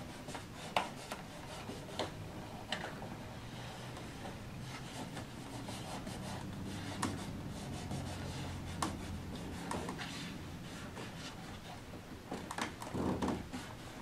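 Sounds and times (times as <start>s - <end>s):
low steady hum: 0.0s - 14.0s
fingertips rubbing card: 3.5s - 11.9s.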